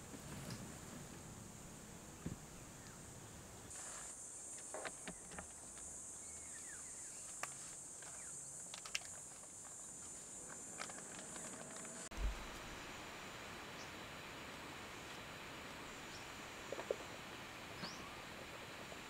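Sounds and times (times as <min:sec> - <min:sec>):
insects buzzing: 0:00.3 - 0:19.0
low thump: 0:12.1 - 0:12.7.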